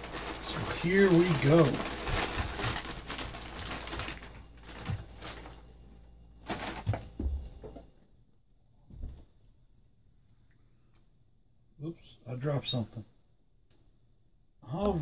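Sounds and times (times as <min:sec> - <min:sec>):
plastic bag rustling and crinkling: 0:00.0 - 0:05.8, 0:06.4 - 0:07.4.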